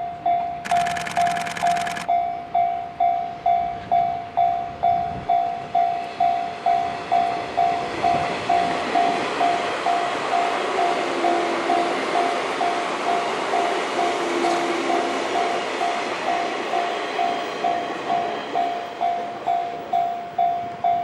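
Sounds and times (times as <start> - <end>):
electric train passing: 0.0 - 21.0.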